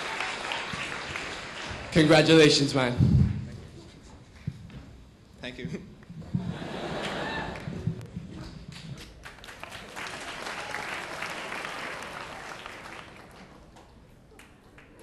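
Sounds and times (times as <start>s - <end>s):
audience applauding: 0.0s - 2.6s, 6.4s - 8.1s, 8.7s - 15.0s.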